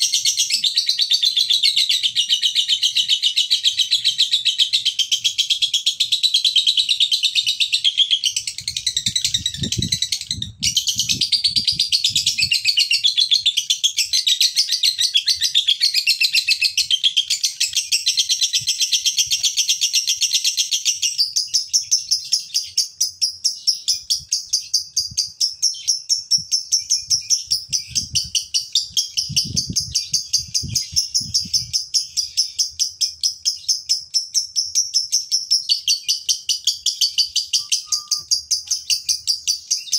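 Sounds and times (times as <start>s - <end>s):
lovebird chattering: 34.9s - 39.9s.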